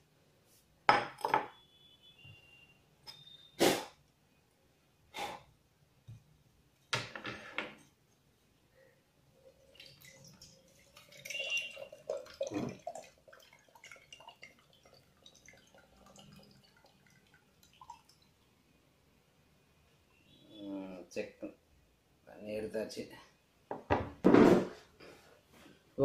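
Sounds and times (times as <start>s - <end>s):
water trickling into a steel cup: 9.3s - 18.5s.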